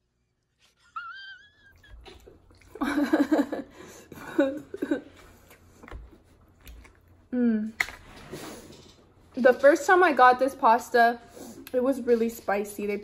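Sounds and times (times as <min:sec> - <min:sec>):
high wavering cry: 0:00.8 - 0:02.0.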